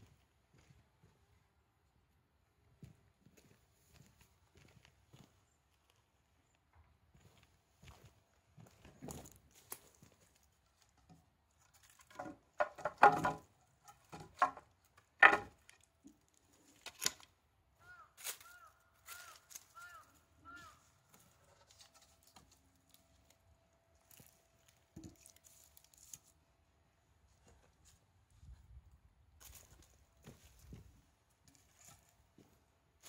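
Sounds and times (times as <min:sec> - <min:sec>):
sharp rustles and knocks: 0:10.9 - 0:15.9.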